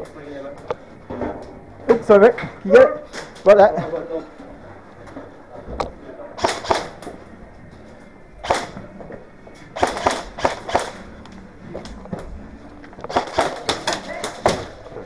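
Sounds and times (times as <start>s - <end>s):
airsoft guns firing: 6.4s - 7.0s, 8.4s - 8.8s, 9.8s - 11.1s, 13.1s - 14.8s.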